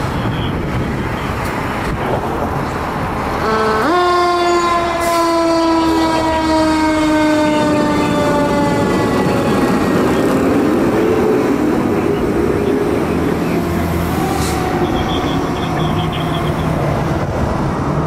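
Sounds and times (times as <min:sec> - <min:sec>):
air horn blast: 0:03.4 - 0:08.9.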